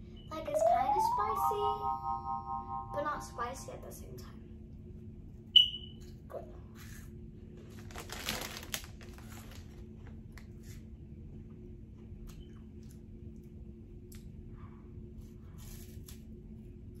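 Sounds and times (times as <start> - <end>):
faint steady hum: 0.0 - 15.6
chip bag rustling: 7.7 - 9.8.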